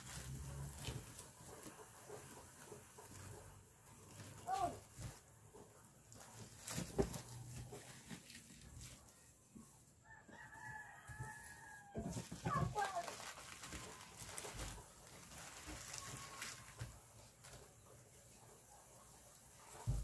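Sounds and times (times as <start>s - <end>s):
mesh and plastic sheeting rustling: 0.0s - 9.9s, 10.6s - 20.0s
rooster crowing: 10.0s - 12.2s.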